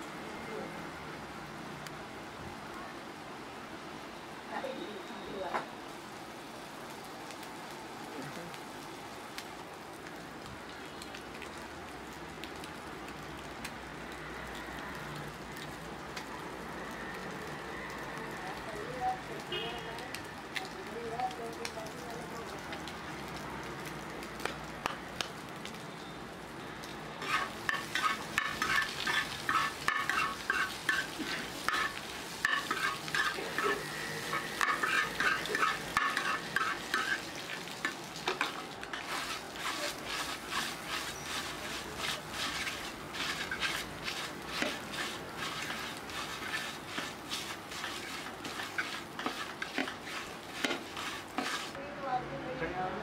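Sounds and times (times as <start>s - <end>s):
frying sizzle: 0.0s - 53.0s
metal spatula clanking on griddle: 27.2s - 37.2s.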